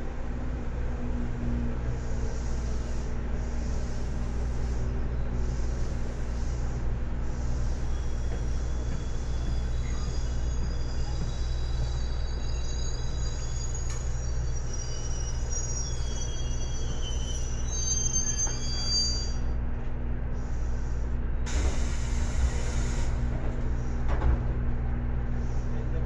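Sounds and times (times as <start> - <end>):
train wheels rumbling on rail: 0.0 - 26.0
high-pitched wheel squeal: 7.3 - 19.6.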